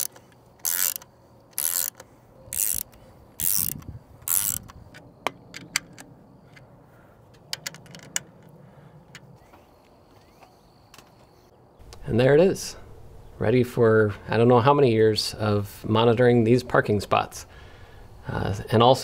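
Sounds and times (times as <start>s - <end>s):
ratchet driver clicking: 0.0s - 4.8s.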